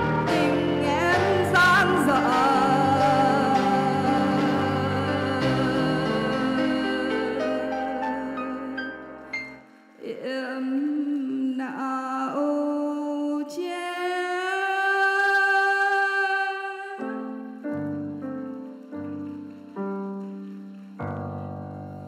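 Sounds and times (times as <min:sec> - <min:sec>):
woman singing into a microphone: 0:00.0 - 0:09.3, 0:10.0 - 0:17.5
instrumental backing chords: 0:00.0 - 0:10.0.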